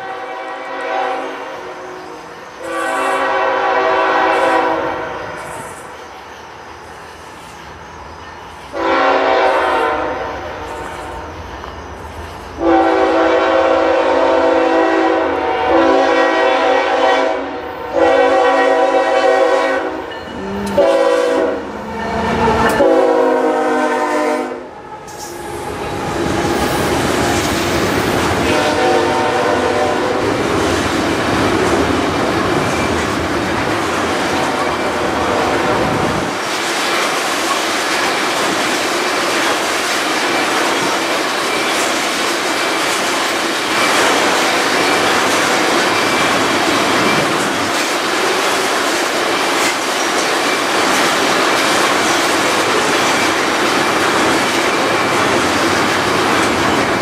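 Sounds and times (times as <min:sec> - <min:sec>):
locomotive air horn blasts: 0:00.0 - 0:01.9, 0:02.6 - 0:05.3, 0:08.8 - 0:10.7, 0:12.6 - 0:21.7, 0:22.8 - 0:24.7, 0:28.4 - 0:30.4
train wheels clattering on rails: 0:25.0 - 0:57.0.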